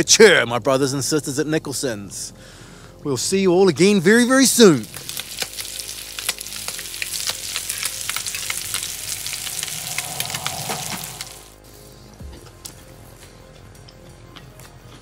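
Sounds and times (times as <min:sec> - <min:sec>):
food sizzling in oil: 0:04.7 - 0:11.8.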